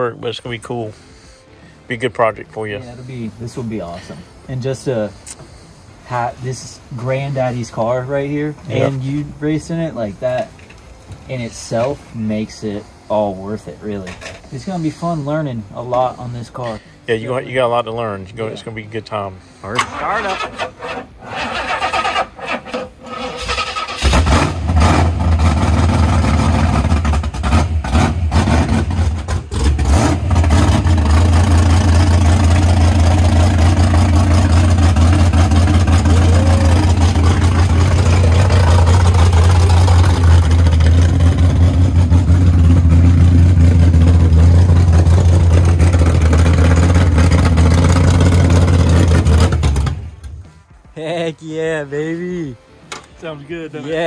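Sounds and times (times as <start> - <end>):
car engine starting and running: 19.7 - 50.5.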